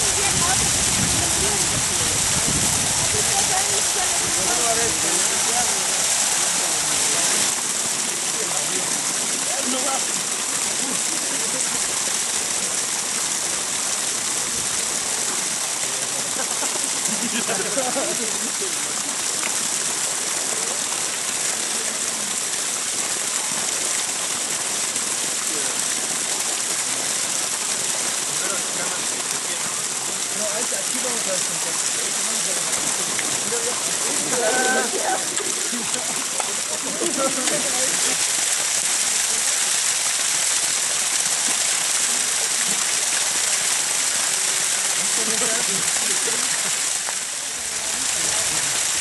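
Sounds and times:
faint voices: 0.0 - 12.9, 24.8 - 49.0
water running: 0.0 - 49.0.

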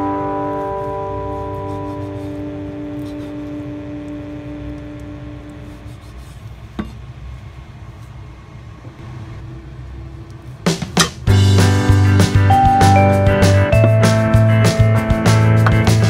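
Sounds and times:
background music: 0.0 - 3.3, 11.0 - 16.0.

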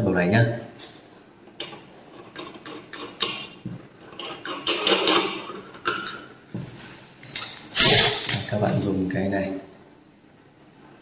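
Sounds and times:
metal scraping: 2.2 - 8.8
sharp metal clank: 7.3 - 8.7.

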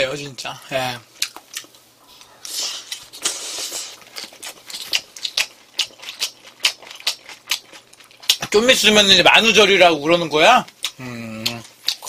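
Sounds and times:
chewing with wet mouth clicks: 1.2 - 8.5, 10.7 - 12.0
soft breathy hiss: 1.9 - 4.0.

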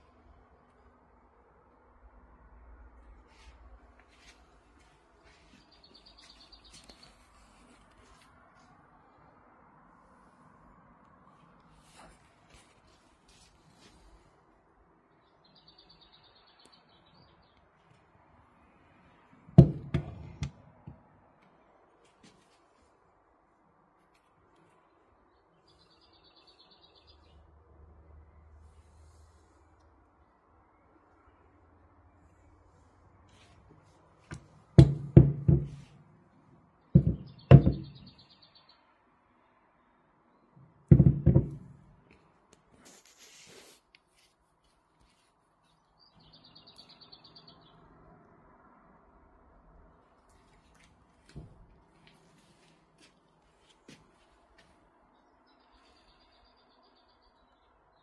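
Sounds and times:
thumps on a wooden table: 19.6 - 20.6, 34.3 - 35.9, 37.0 - 38.1, 40.9 - 41.7.

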